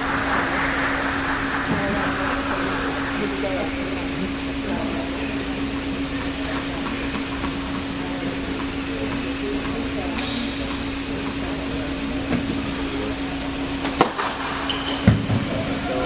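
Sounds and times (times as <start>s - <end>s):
murmur of voices: 0.0s - 16.0s
ventilation hum: 0.0s - 16.0s.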